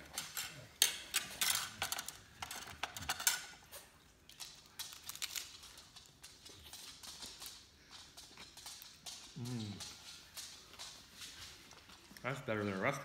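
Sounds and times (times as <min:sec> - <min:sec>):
crisp shell cracking and crunching: 0:04.2 - 0:07.4.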